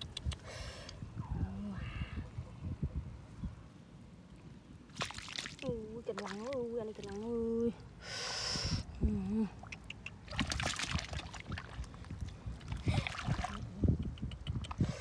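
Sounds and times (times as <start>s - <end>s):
hands splashing in muddy water: 4.9s - 7.3s, 10.2s - 13.7s.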